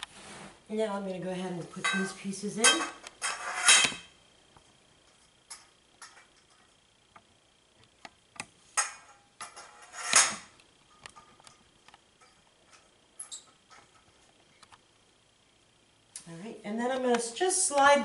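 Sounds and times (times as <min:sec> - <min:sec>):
metal poles clinking: 0:01.7 - 0:04.1.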